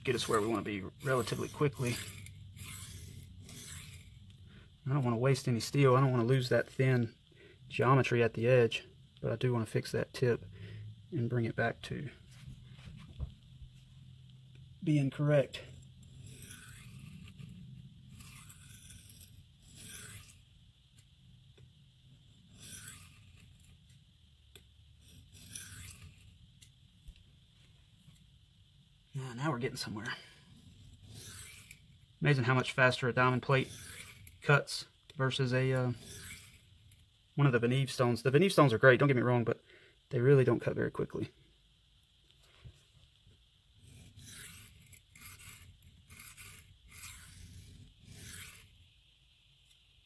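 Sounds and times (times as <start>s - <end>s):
knife scraping on sharpening plate: 16.2s - 17.4s, 18.1s - 20.3s, 22.6s - 23.2s, 44.0s - 48.6s.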